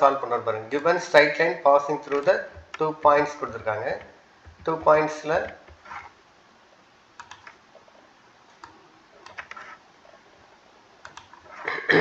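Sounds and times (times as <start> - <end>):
computer keyboard keys clicking: 2.1 - 5.8, 7.2 - 7.6, 8.6 - 9.6, 11.0 - 11.5.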